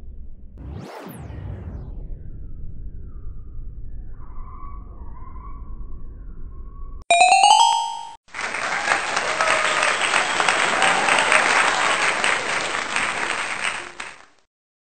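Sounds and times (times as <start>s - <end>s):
short bright chime: 7.1s - 8.2s
crowd applauding: 7.1s - 14.4s.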